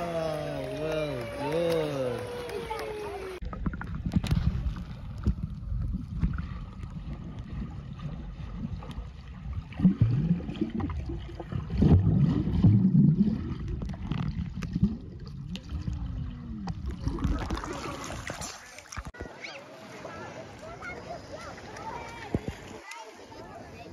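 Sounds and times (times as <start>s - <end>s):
underwater churning bursts: 9.4s - 19.1s.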